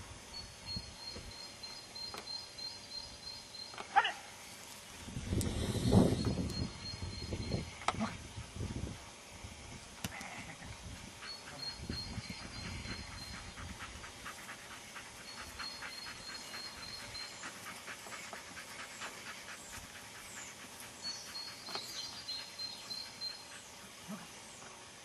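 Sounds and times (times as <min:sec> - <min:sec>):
dog panting quickly: 0:10.9 - 0:24.2.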